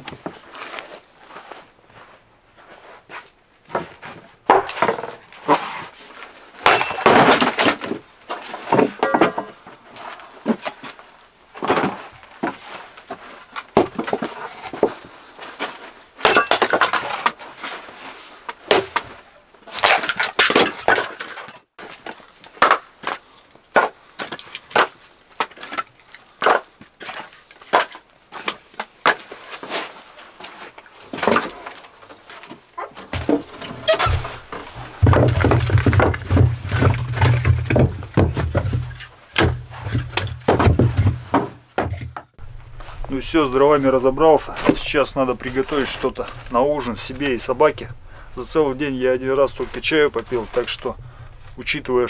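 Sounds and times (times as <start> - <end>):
logs knocking and clattering: 3.7 - 5.4, 6.6 - 9.8, 31.1 - 42.4.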